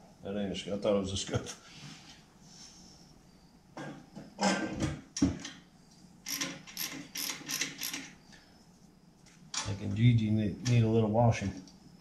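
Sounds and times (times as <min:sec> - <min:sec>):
ratchet clicks: 0:06.3 - 0:08.1.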